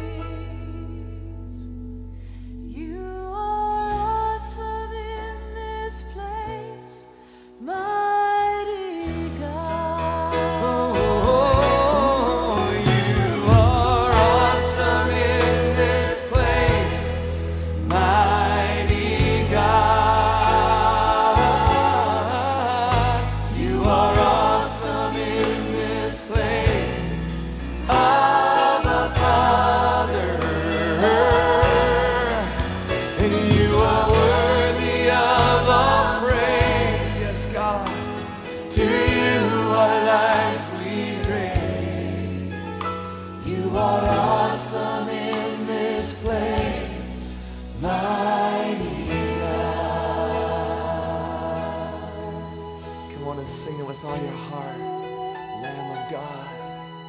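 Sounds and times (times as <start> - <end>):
voices singing worship song: 0.0 - 1.7, 2.7 - 57.0
sustained bass notes: 9.2 - 45.0.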